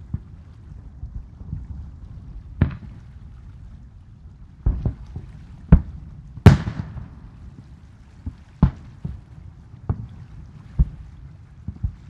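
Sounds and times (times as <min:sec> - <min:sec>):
low rumble: 0:00.0 - 0:12.0
firework shells booming: 0:05.8 - 0:07.2.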